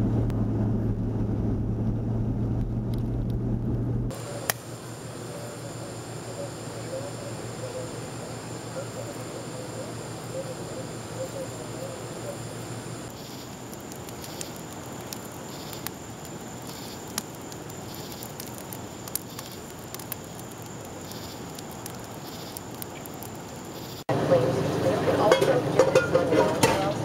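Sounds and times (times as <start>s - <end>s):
pulsing insect calls: 4.1s - 24.0s
campfire crackling and popping: 4.1s - 24.1s.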